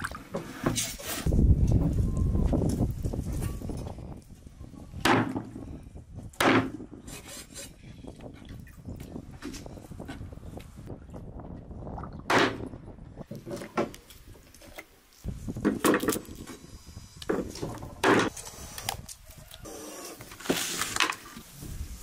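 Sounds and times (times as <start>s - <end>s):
rubbing and scraping: 0.3s - 1.3s, 6.6s - 7.9s.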